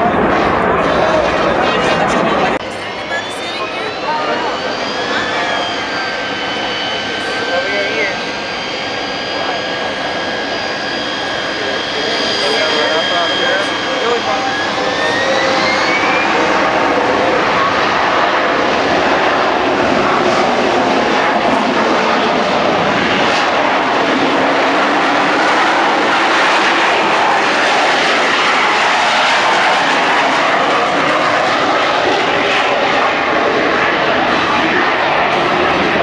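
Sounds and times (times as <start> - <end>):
jet engine roar: 0.0 - 36.0.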